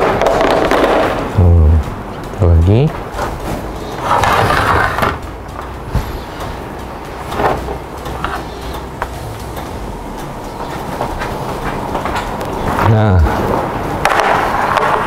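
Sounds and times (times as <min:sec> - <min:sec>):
steady low hum: 0:00.0 - 0:15.0
metal baking tray scraping: 0:03.4 - 0:05.2.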